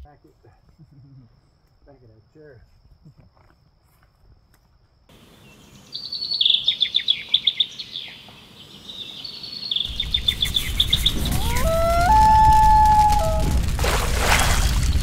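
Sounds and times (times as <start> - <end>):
songbird chirping: 5.1 - 12.6.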